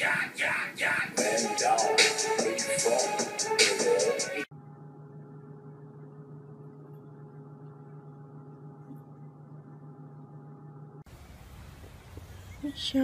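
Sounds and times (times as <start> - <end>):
low electrical hum: 4.5 - 13.0.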